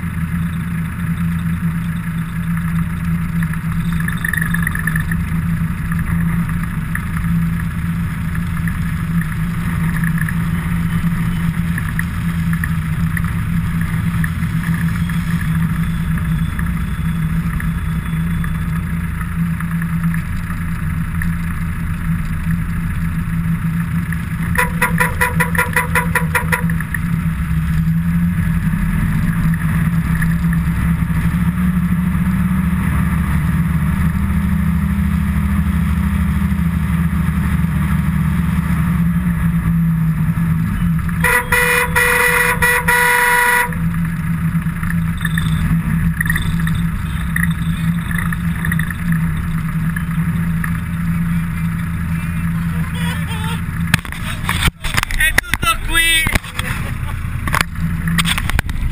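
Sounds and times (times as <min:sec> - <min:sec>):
vehicle engine humming: 0:00.0 - 0:58.9
rapid pulsing tone: 0:24.5 - 0:26.8.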